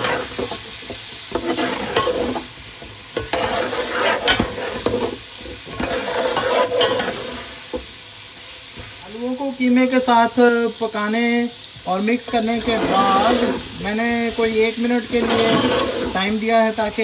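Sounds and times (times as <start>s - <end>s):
meat sizzling in oil: 0.0s - 17.0s
spoon scraping and clinking pot: 1.3s - 2.4s, 3.2s - 5.1s, 5.7s - 7.4s, 15.2s - 16.1s.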